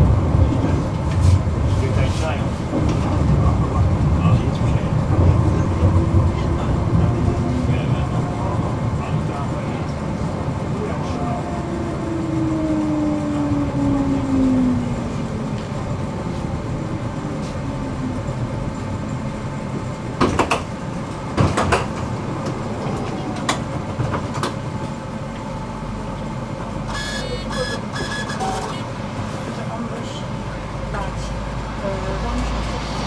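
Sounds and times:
wheels clacking on rails: 0.0 - 25.5
tram rolling rumble: 0.0 - 33.0.

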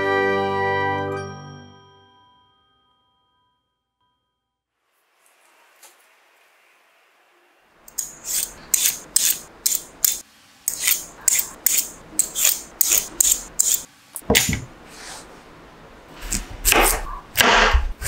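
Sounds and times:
peeler scraping vegetables: 7.9 - 13.9.

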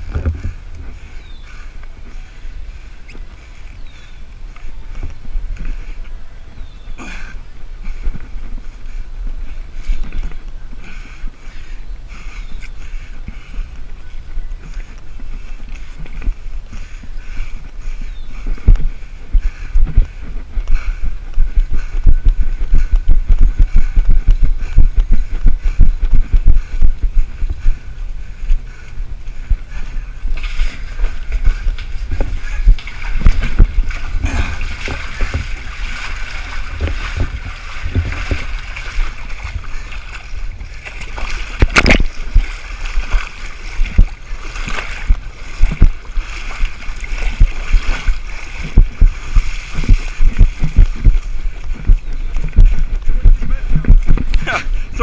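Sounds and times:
rough thuds: 0.0 - 0.6, 30.3 - 40.2
wind buffeting microphone: 0.0 - 55.0.

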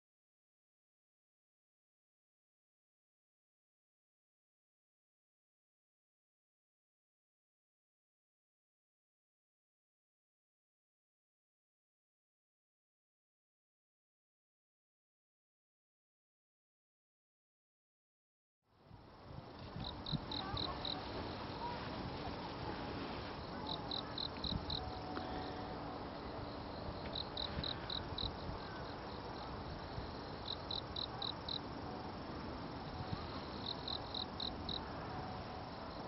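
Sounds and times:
steady background noise: 18.7 - 36.0
insect chirping: 18.9 - 36.0.

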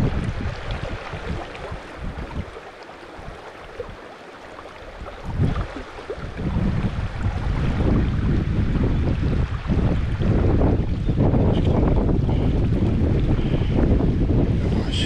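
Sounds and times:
river water rushing: 0.0 - 8.3
wind buffeting microphone: 0.0 - 15.0.

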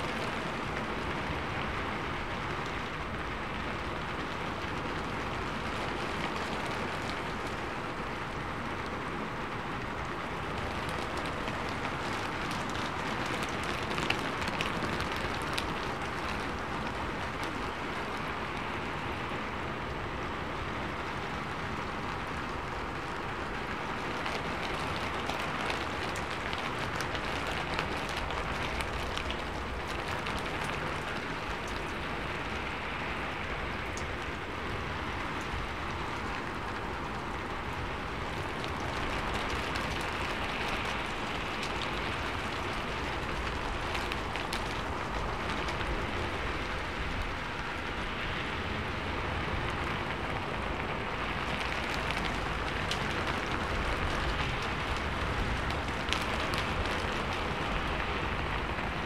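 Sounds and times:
rain on a metal roof: 0.0 - 59.0.

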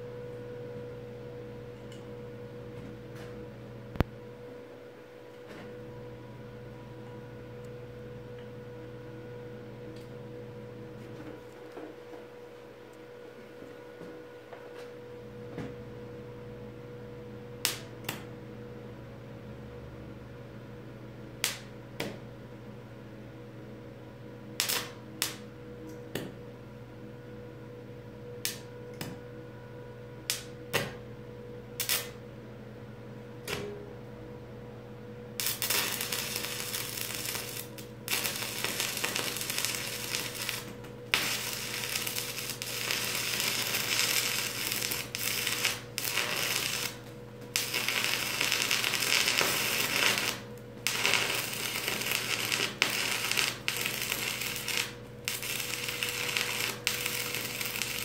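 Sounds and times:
arc welder crackling: 17.6 - 18.3, 24.6 - 25.4, 28.4 - 29.2, 30.2 - 31.0, 31.8 - 32.2, 35.4 - 58.0.

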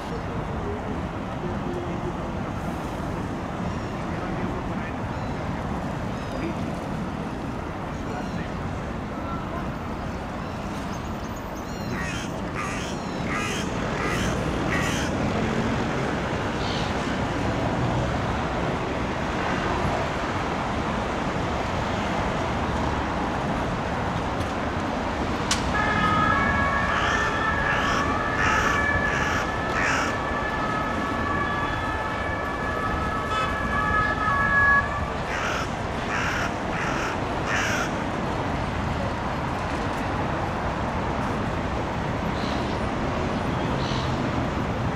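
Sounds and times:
city traffic: 0.0 - 44.9
crows cawing: 12.0 - 15.2, 26.9 - 30.2, 33.3 - 33.6, 35.3 - 38.0
distant two-note siren: 25.7 - 35.4.

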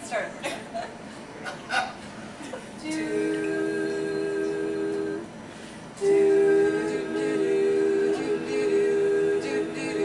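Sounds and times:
voices humming in harmony: 2.8 - 5.4, 6.0 - 10.0.

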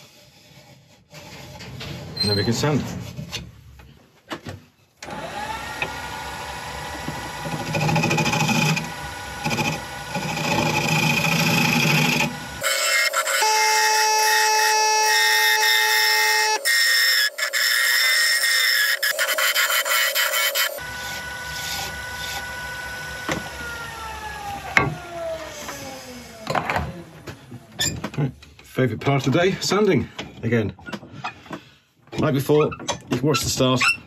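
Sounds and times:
wood lathe running: 5.0 - 26.5
scraper cutting wood bowl: 6.8 - 22.9.

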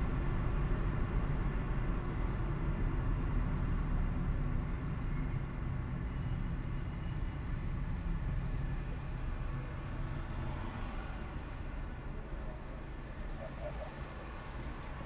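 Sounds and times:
car driving road and engine noise: 0.0 - 15.0.

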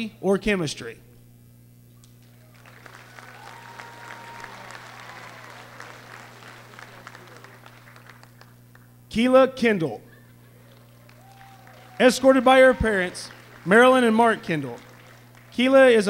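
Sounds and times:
crowd applauding lightly: 2.1 - 9.0, 10.5 - 16.0.

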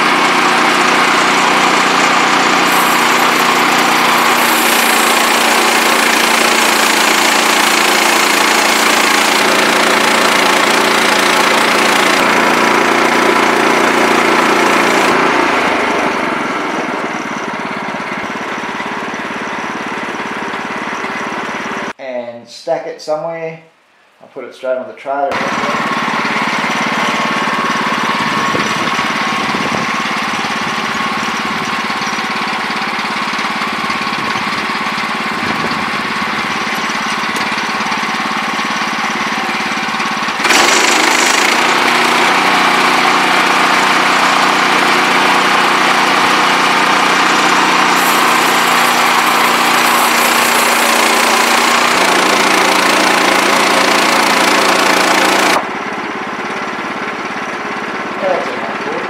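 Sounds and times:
sawmill engine running: 0.0 - 22.0, 25.3 - 59.0
band blade cutting through log: 1.8 - 12.5, 40.4 - 44.3, 46.9 - 55.7.

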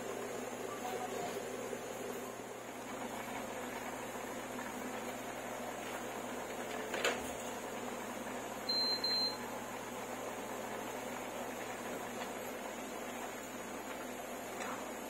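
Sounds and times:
appliance beeper: 8.7 - 9.5.

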